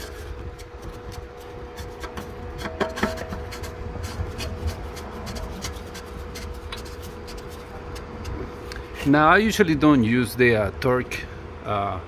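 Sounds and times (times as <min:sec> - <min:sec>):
cap being screwed on: 0:00.0 - 0:08.4
gloved hands rubbing: 0:00.0 - 0:08.8
steady background hum: 0:00.0 - 0:12.0.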